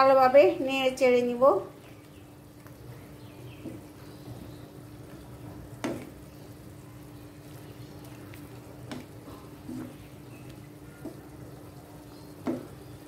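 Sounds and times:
curry simmering in a pan: 1.6 - 13.0
wooden spatula stirring: 1.7 - 13.0
spatula knocking on pan: 5.8 - 6.2, 12.4 - 12.8.

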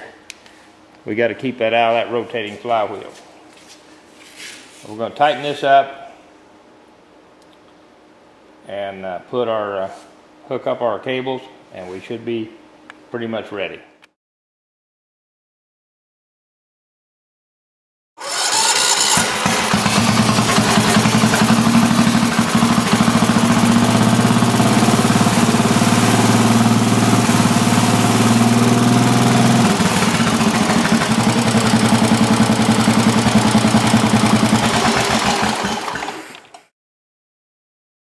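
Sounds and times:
scooter engine pulsing beat: 19.8 - 26.8, 29.6 - 35.4.

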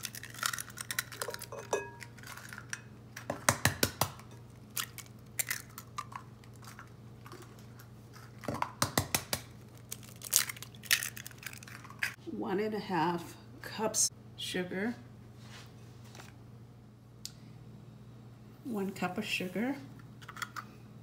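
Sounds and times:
eggs cracking into glass bowl: 0.0 - 7.5.

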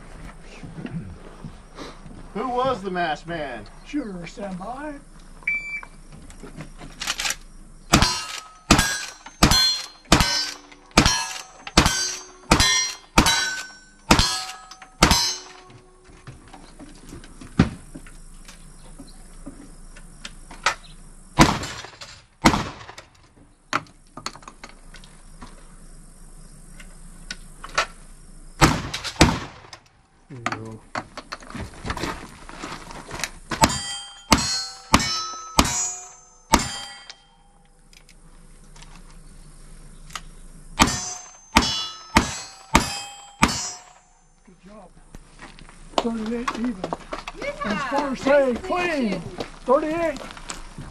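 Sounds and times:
gunshots: 7.9 - 15.5, 21.4 - 23.2, 28.6 - 29.9, 40.8 - 43.9
loud gun blasts: 7.9 - 15.5, 21.4 - 23.2, 28.6 - 29.9, 40.8 - 43.9
struck steel ringing: 7.9 - 16.3, 33.6 - 37.9, 40.8 - 44.6.

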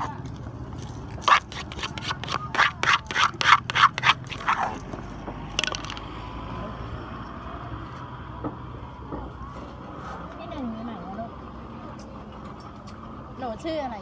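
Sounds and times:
wooden pestle pounding in mortar: 1.2 - 4.7.

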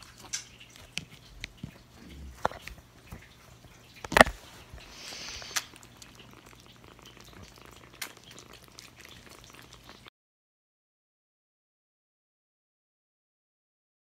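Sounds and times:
clicks of eating: 0.0 - 10.0
kittens purring: 0.0 - 10.1.

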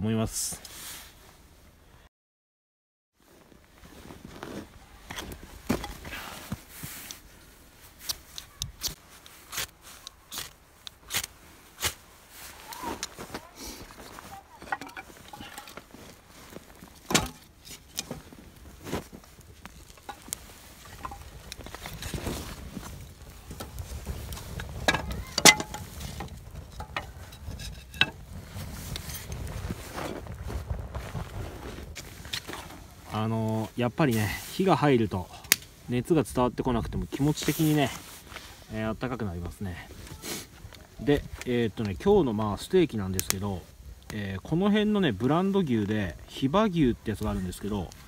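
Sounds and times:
soft handling noises: 3.2 - 44.4
fire crackling: 3.2 - 48.0
kindling sticks knocking: 14.0 - 28.2.

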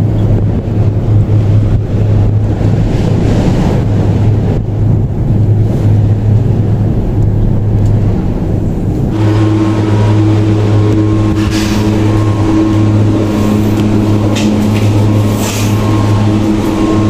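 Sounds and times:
cable car cabin rumble: 0.0 - 17.0
steady multi-tone hum: 0.0 - 17.0
wind noise: 0.0 - 17.0.

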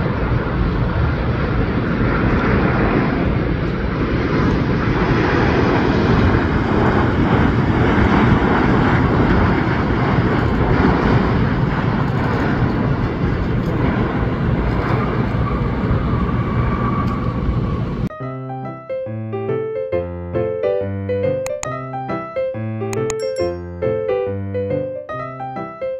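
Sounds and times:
jet engine landing roar: 0.0 - 18.1.

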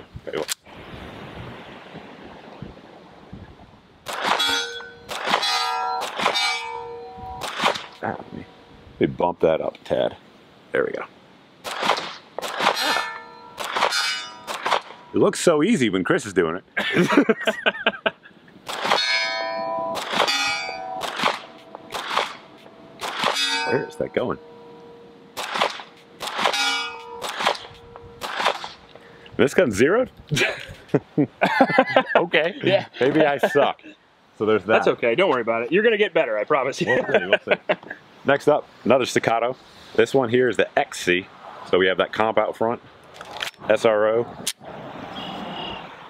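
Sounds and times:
pistol shots: 4.0 - 6.6, 7.4 - 8.0, 11.6 - 13.0, 13.6 - 15.0, 18.6 - 19.2, 19.9 - 23.6, 25.4 - 28.8
steel target ringing: 4.3 - 8.7, 12.7 - 15.5, 18.8 - 28.9.

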